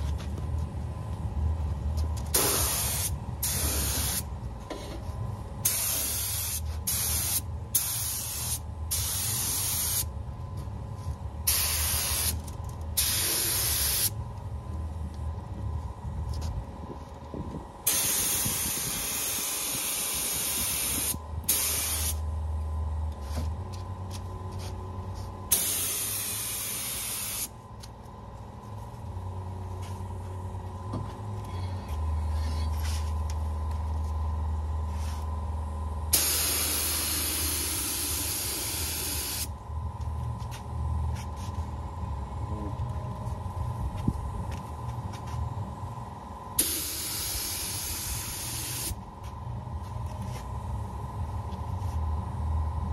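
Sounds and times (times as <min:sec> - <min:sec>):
steady low hum: 0:00.0 - 0:52.9
spray gun air hiss bursts: 0:02.3 - 0:04.3, 0:05.6 - 0:10.1, 0:11.4 - 0:12.4, 0:13.0 - 0:14.1, 0:17.8 - 0:22.2, 0:25.5 - 0:27.5, 0:36.1 - 0:39.5, 0:46.6 - 0:49.0.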